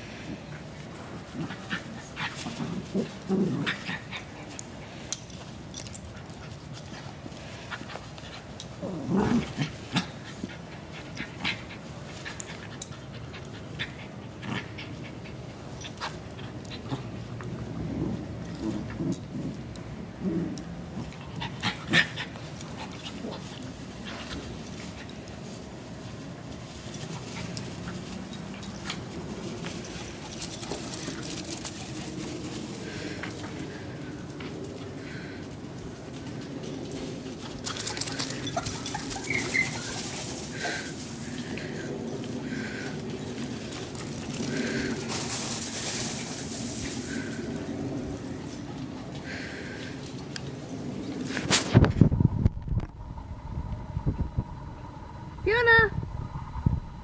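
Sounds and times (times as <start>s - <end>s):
dogs panting: 21.0s - 51.4s
dogs yipping and growling: 37.6s - 45.0s
dog whimpering: 38.7s - 40.0s.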